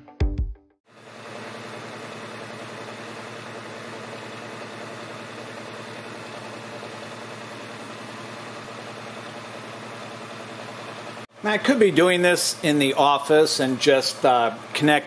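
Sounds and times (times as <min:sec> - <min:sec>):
cooling fans rushing air: 0:01.0 - 0:15.0.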